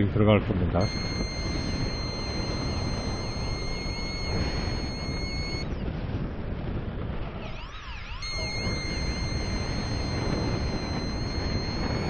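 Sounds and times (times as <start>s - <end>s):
wind rushing over microphone: 0.0s - 12.0s
thin high tone: 0.8s - 5.6s, 8.2s - 12.0s.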